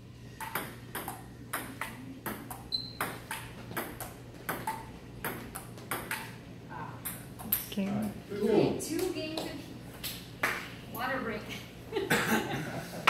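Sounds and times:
table tennis ball clicking: 0.4 - 6.3.

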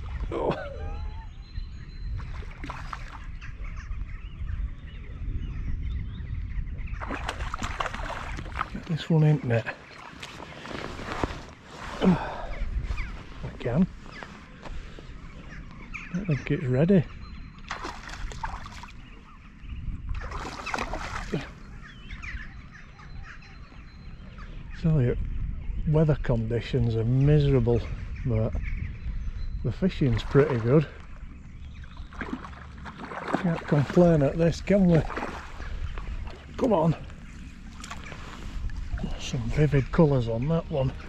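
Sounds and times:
birds chirping: 0.0 - 41.0
wind buffeting microphone: 0.0 - 41.0
fish splashing in water: 7.0 - 8.8, 17.7 - 19.0, 20.2 - 21.5, 32.0 - 34.2, 34.9 - 36.6.

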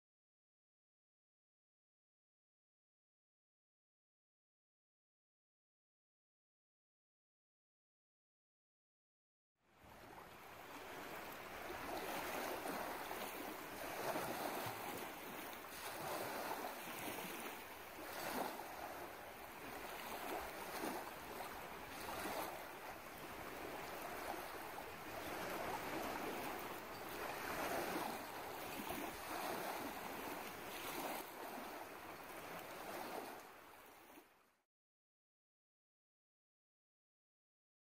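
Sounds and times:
small waves lapping on stones: 9.8 - 34.3.

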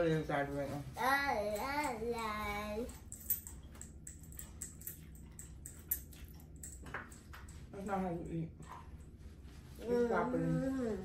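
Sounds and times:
people chewing food: 3.5 - 7.7.

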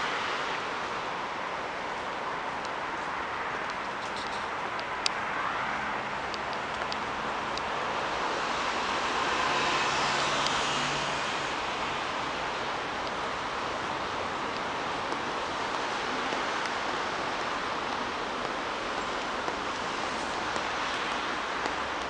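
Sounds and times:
road traffic hiss: 0.0 - 22.0.

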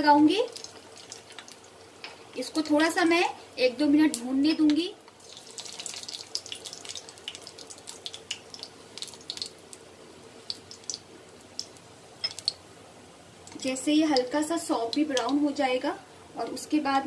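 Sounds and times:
seeds sizzling in hot oil: 0.0 - 12.7
oil crackles and pops: 0.2 - 2.9, 4.1 - 12.6.

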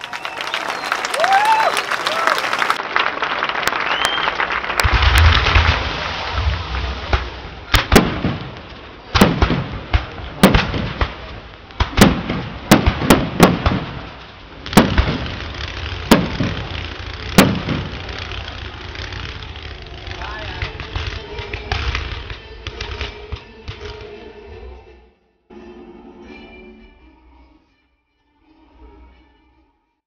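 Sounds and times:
fireworks bangs: 3.6 - 24.2
low rumble: 4.5 - 25.1.

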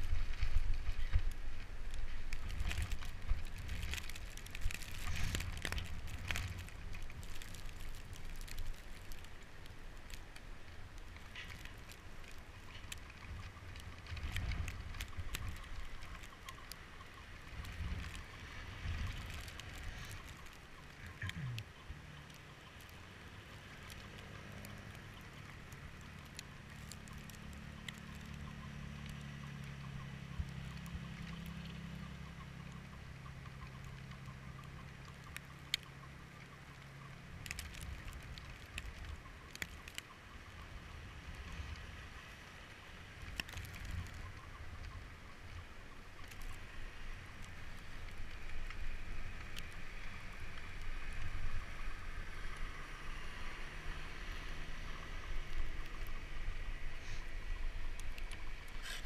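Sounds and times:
faint vehicle engine hum: 0.0 - 59.0
low rumbling microphone noise: 17.2 - 22.1.

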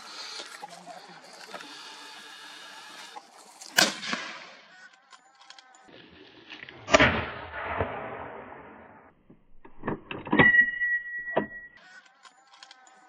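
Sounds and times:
rifle shots with echo: 6.9 - 9.1.

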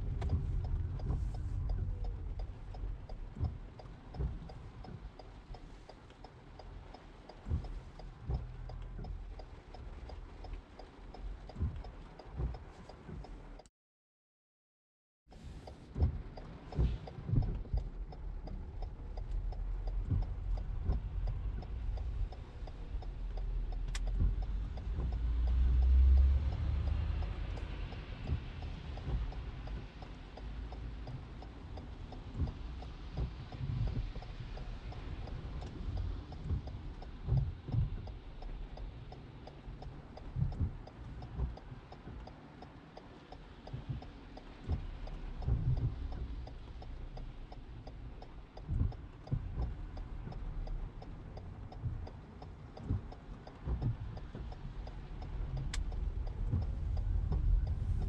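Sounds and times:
car and traffic rumble: 0.0 - 13.7, 15.3 - 58.0
turn signal ticking: 0.0 - 13.7, 15.3 - 58.0
deep rumble: 52.8 - 58.0.

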